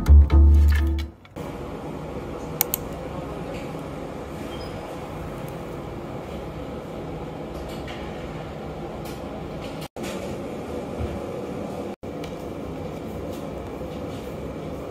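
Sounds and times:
short clicks: 2.6s - 2.9s.

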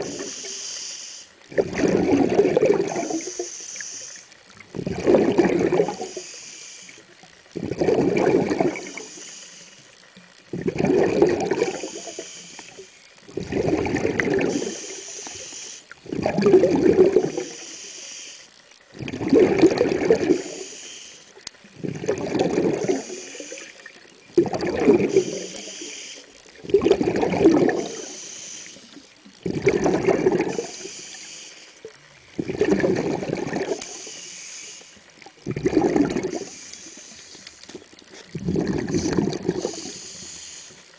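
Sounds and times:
regulator hiss: 0.0s - 40.9s
diver exhaust bubbles: 1.5s - 3.5s, 4.7s - 6.2s, 7.6s - 9.1s, 10.5s - 12.3s, 13.3s - 15.0s, 16.0s - 17.5s, 19.0s - 20.6s, 21.8s - 23.8s, 24.4s - 25.9s, 26.6s - 28.2s, 29.4s - 30.9s, 32.3s - 34.0s, 35.4s - 36.6s, 38.2s - 40.1s.

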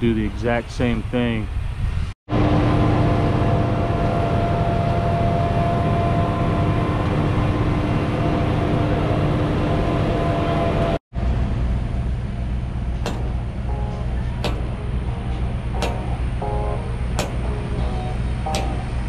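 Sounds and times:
diesel engine droning: 2.3s - 19.0s
steady low drone: 2.3s - 19.0s
faint whining tones: 11.8s - 19.0s.

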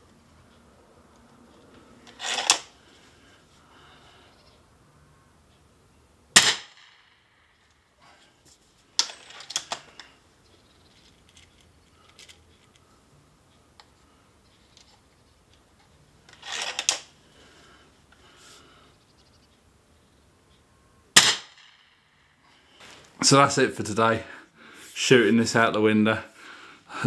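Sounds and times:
rifle handling clicks and clatter: 1.1s - 2.7s, 8.4s - 10.2s, 10.8s - 12.9s, 14.5s - 17.2s
air rifle firing: 6.4s - 7.0s, 21.2s - 21.8s.

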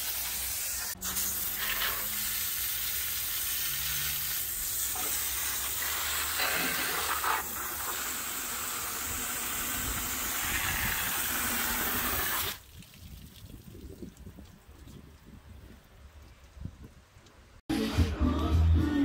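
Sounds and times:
pressure washer jet hissing: 0.0s - 12.6s
water dripping and splashing: 12.4s - 17.4s.

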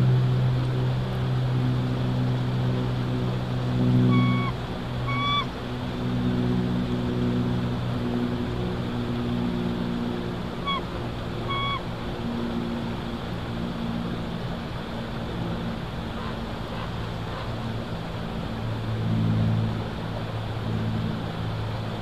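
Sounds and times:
low mechanical drone: 0.0s - 22.0s
wind hiss: 0.0s - 22.0s
eagle high call notes: 4.0s - 5.5s, 10.6s - 11.8s.

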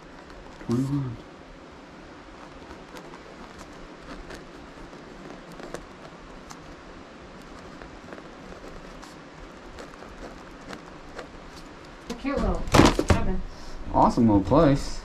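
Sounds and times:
steady low hiss: 0.0s - 15.0s
pen scratching on paper: 2.2s - 12.2s.

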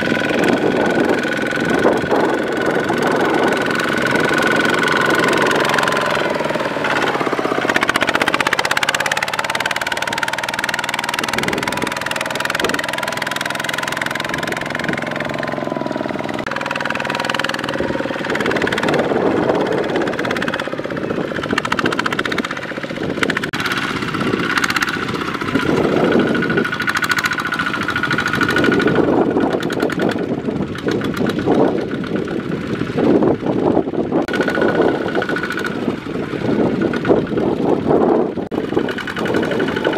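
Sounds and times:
diesel engine chugging: 0.0s - 39.9s.

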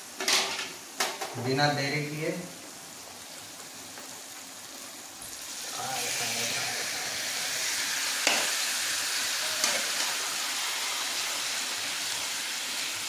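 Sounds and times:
chicken sizzling in hot oil: 0.0s - 13.0s.

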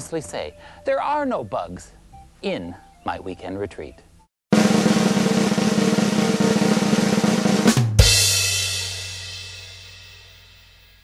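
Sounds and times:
snare drum roll: 4.5s - 10.1s
ringing final drum hit: 4.5s - 10.6s.

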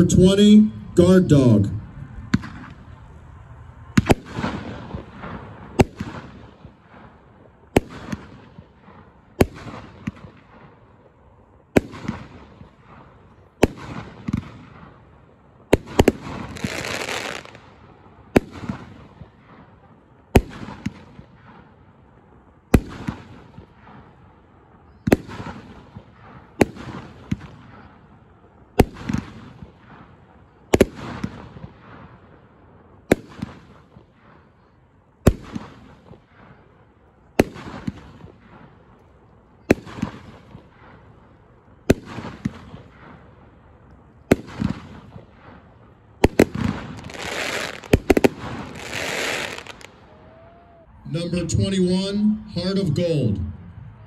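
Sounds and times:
firework stars crackling: 0.0s - 50.8s
firework shots banging: 2.1s - 3.0s, 4.0s - 10.8s, 11.7s - 15.1s, 15.7s - 17.7s, 25.0s - 27.9s, 28.8s - 32.2s, 33.1s - 34.4s, 35.2s - 36.4s, 37.4s - 38.8s, 39.6s - 41.1s, 41.9s - 43.3s, 44.3s - 50.0s.

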